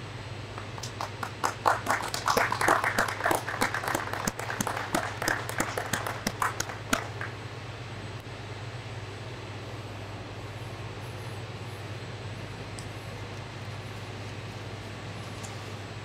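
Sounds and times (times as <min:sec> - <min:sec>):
steady low hum: 0:00.0 - 0:16.0
people clapping: 0:00.5 - 0:07.4.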